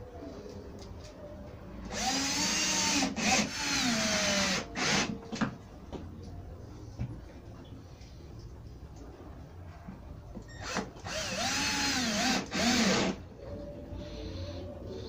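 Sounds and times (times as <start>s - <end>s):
cordless drill driving a screw: 1.9s - 5.1s, 10.6s - 13.2s.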